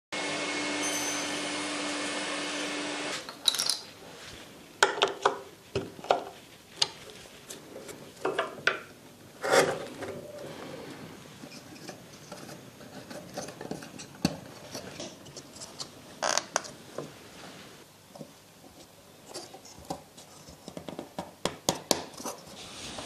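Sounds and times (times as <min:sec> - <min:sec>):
table saw motor running: 0:00.2 - 0:03.2.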